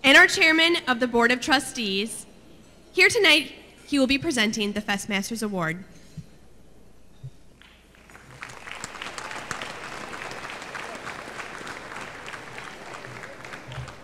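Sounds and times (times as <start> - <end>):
audience applauding: 7.9 - 14.0.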